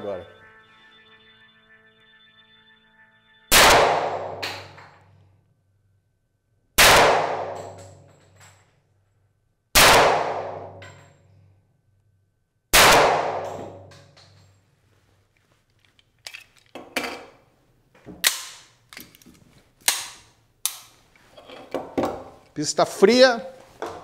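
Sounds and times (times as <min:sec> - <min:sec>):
pistol shots: 0:03.5 - 0:04.7, 0:06.8 - 0:07.8, 0:09.8 - 0:10.8, 0:12.7 - 0:13.6.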